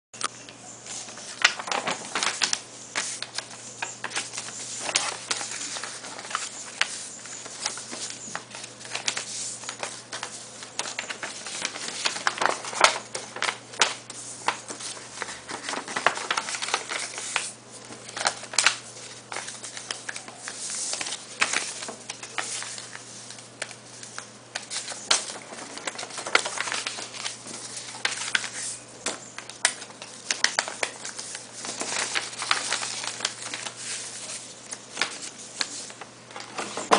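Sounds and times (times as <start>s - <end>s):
paper rustling and crinkling: 0.8s - 36.9s.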